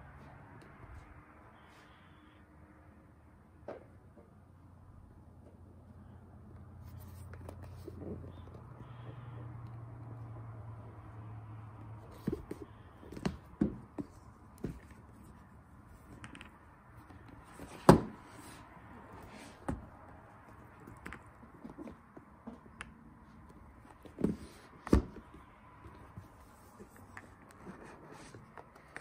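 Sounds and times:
cardboard packaging taps and knocks: 12.2 - 14.9, 17.7 - 18.2.

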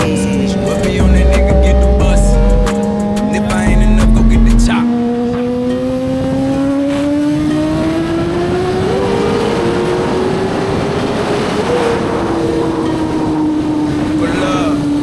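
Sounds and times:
motorcycle engine accelerating: 0.0 - 15.0
wind noise: 6.0 - 15.0.

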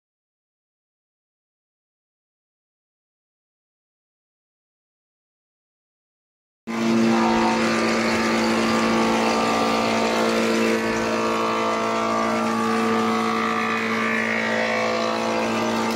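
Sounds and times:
machine motor humming: 6.7 - 15.9.

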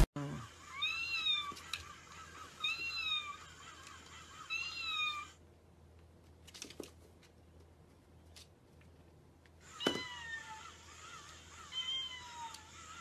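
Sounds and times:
toy mechanism whirring: 0.5 - 5.4, 9.6 - 13.0
toy kitten meowing: 0.6 - 5.4, 9.7 - 13.0.

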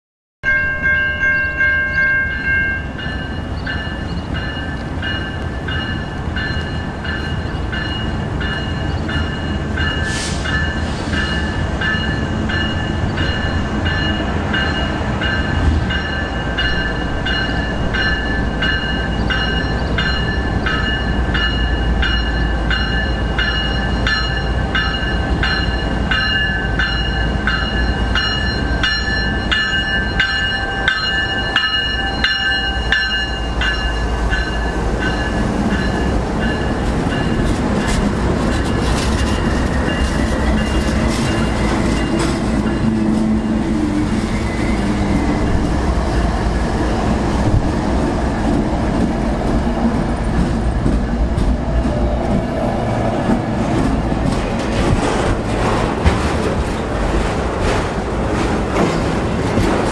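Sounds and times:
locomotive bell ringing: 0.4 - 47.3.

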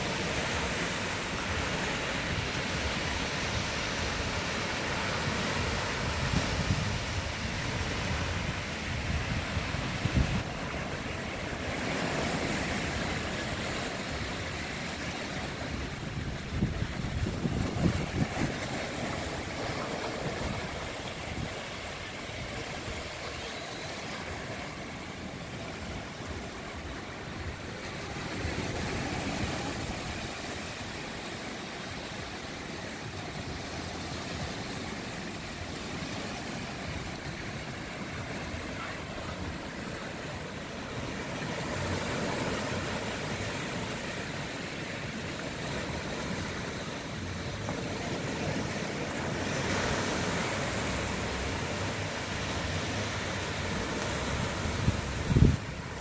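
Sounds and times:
small waves washing up beach: 0.0 - 56.0
wind buffeting microphone: 15.7 - 21.7, 54.2 - 56.0.

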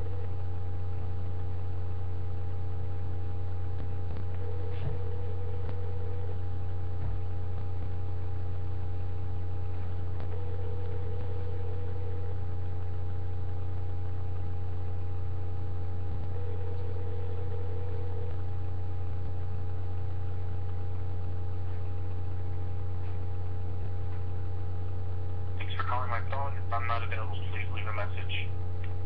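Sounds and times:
loud steady low hum: 0.0 - 29.0
telephone ringback tone: 10.3 - 12.3, 16.3 - 18.3.

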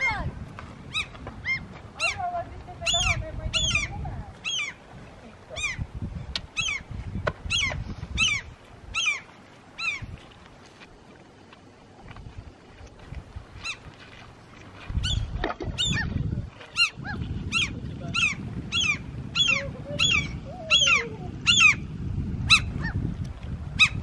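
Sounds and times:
seabirds harsh alarm calls: 0.0 - 4.9, 5.5 - 10.2, 15.0 - 16.1, 16.7 - 23.0, 23.8 - 24.0.

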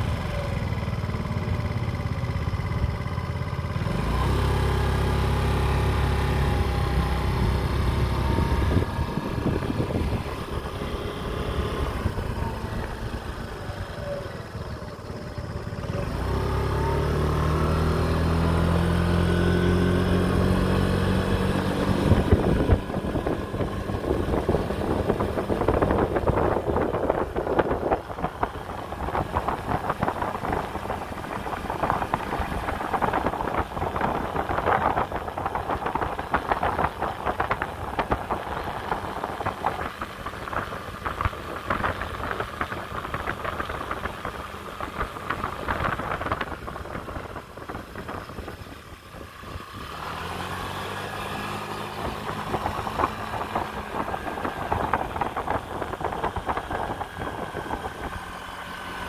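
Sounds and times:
scooter engine running: 0.0 - 59.0
rushing riding noise: 19.7 - 59.0.

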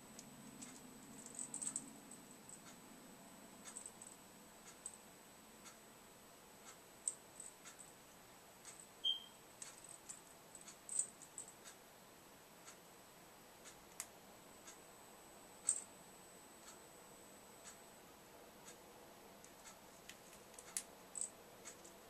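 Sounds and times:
high bird peep: 9.0 - 9.4.

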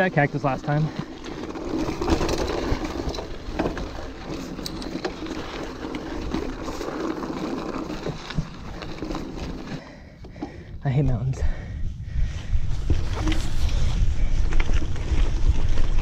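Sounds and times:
bike knocks and rattles: 0.0 - 10.6
bike tyres rumbling on rock: 0.0 - 10.7, 12.6 - 16.0.

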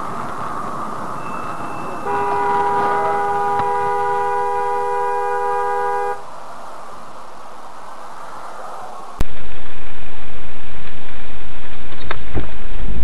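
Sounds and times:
road noise: 0.0 - 9.3
car horn blast: 1.8 - 6.2.

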